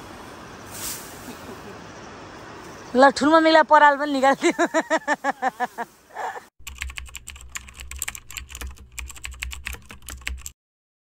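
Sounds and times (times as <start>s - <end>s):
rapid irregular clicking: 6.6s - 10.6s.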